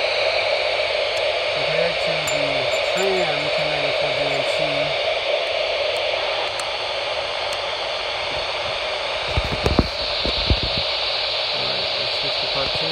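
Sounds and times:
scanner speaker hiss: 7.3 - 12.9.

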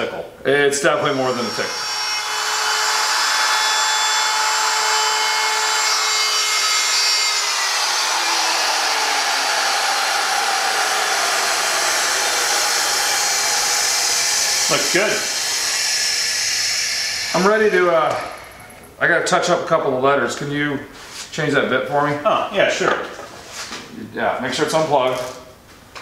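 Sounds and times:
router whining while cutting wood: 1.0 - 18.8.

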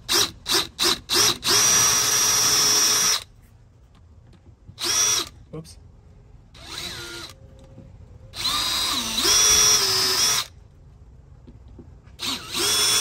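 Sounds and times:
cordless drill motor whine: 0.1 - 3.3, 4.8 - 5.3, 6.6 - 7.7, 8.3 - 10.5, 12.2 - 13.0.

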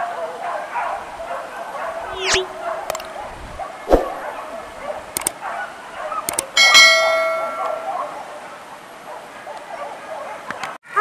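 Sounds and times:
mouse clicks: 2.2 - 3.1, 5.1 - 5.4, 6.2 - 6.5.

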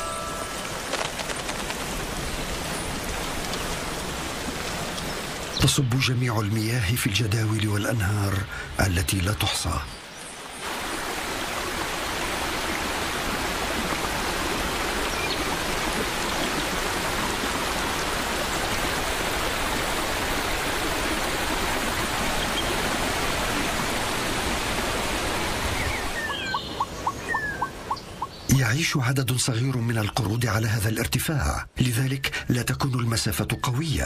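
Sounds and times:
birds chirping: 0.0 - 10.7, 14.5 - 34.0
river rushing over rocks: 10.6 - 26.4.

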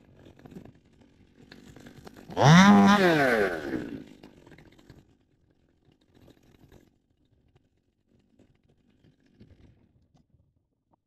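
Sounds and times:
chainsaw revving: 2.2 - 4.5.

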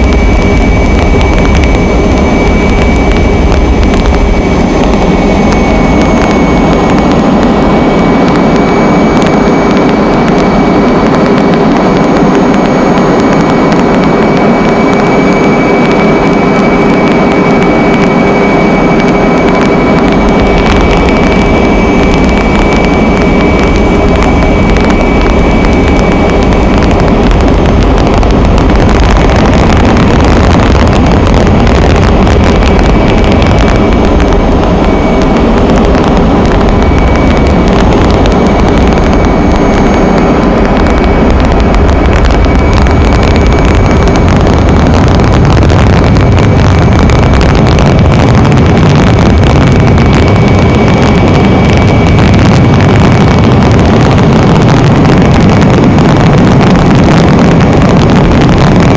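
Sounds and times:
aircraft engine drone: 0.0 - 58.9
rushing wind: 0.0 - 58.9
steady high whine: 0.0 - 58.9.

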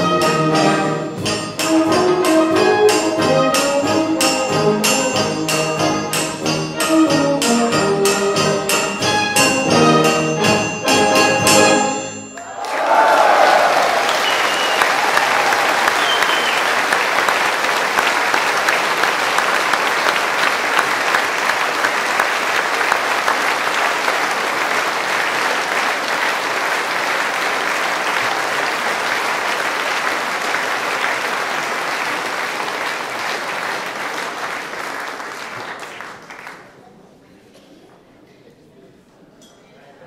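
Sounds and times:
audience applause: 12.3 - 37.0.

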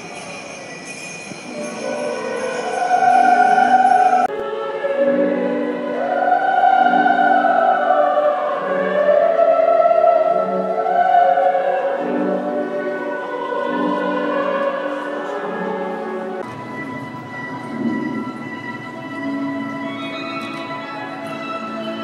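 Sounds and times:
high jingling bells: 0.0 - 4.3
operatic choral music with orchestra: 1.3 - 22.0.

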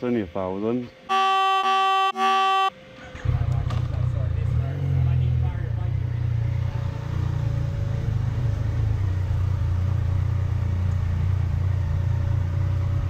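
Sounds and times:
motor vehicle rumble: 2.7 - 13.0.

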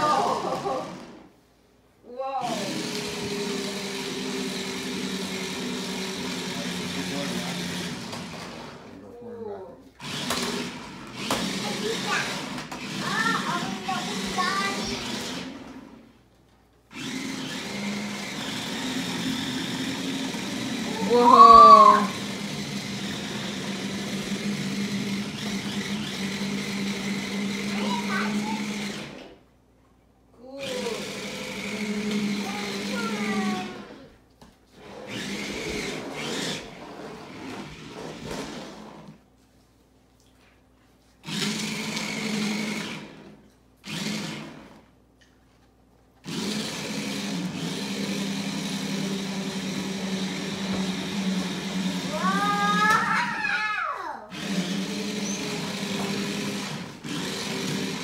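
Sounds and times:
toy car electric motors humming: 2.5 - 9.0, 10.0 - 16.1, 16.9 - 29.4, 30.4 - 34.1, 34.8 - 39.2, 41.2 - 44.9, 46.2 - 58.0.

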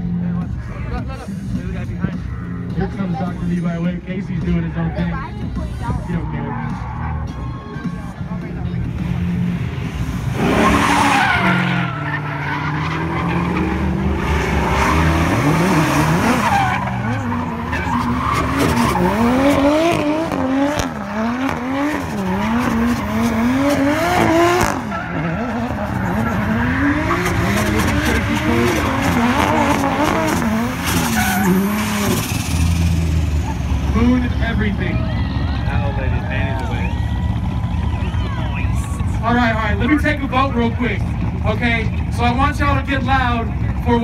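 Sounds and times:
car engine revving: 0.0 - 35.0
tyres squealing and skidding: 5.3 - 8.2, 9.3 - 40.1.

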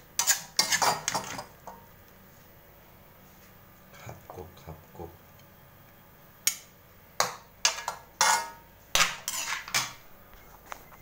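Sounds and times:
metal spoon scraping a wok: 0.2 - 1.5, 7.7 - 10.0.

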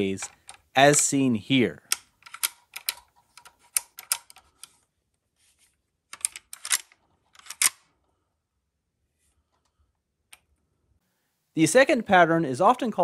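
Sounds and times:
metal bayonet clicking and scraping: 0.0 - 1.1, 1.8 - 4.9, 6.1 - 8.0.

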